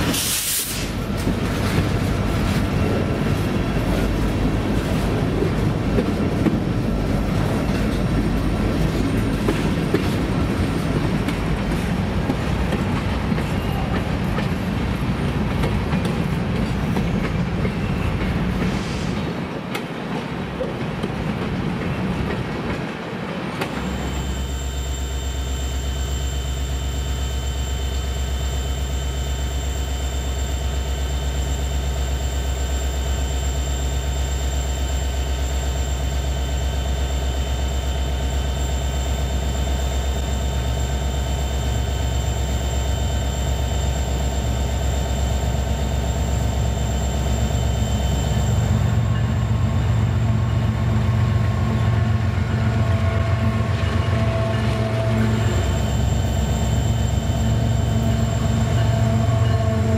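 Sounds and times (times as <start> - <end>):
diesel locomotive engine running: 0.0 - 59.9
thin high whine: 53.8 - 59.9.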